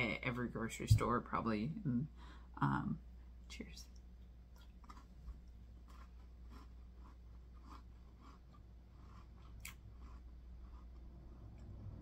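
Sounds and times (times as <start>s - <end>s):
low steady hum: 0.0s - 12.0s
chewing crackers: 4.5s - 11.7s.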